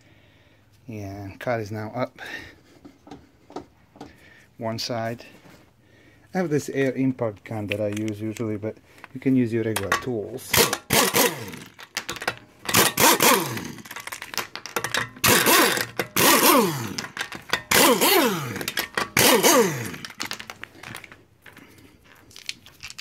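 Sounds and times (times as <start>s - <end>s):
air impact wrench spinning: 9.8s - 21.0s.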